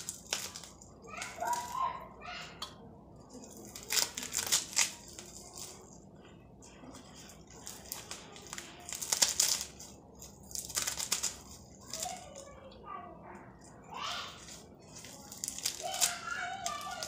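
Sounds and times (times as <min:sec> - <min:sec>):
leafy greens tearing and rustling: 0:00.0 - 0:02.1, 0:03.1 - 0:12.6, 0:13.4 - 0:17.0.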